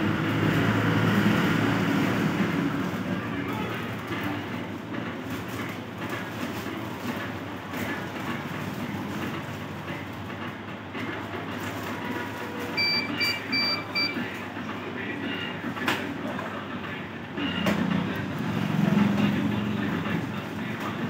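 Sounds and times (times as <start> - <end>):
short high electronic beeps: 12.8 - 14.2.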